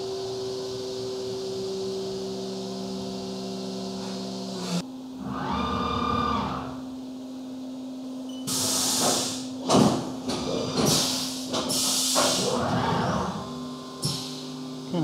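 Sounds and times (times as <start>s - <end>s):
short machine whine: 0.0s - 7.0s
machine hum: 0.0s - 15.0s.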